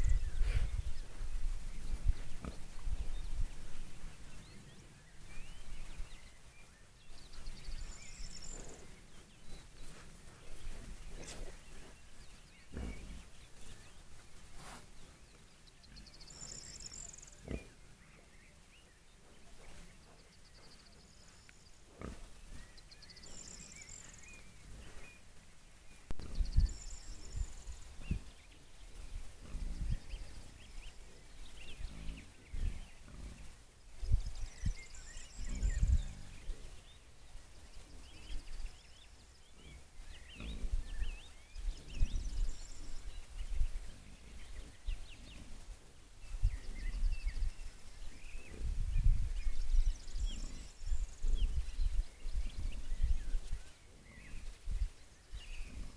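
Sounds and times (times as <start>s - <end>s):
birds singing: 0.0s - 55.9s
wild boars grunting: 2.2s - 3.3s, 7.7s - 13.9s, 15.8s - 18.4s, 21.8s - 25.2s, 29.3s - 33.6s, 34.8s - 37.0s, 39.5s - 43.0s.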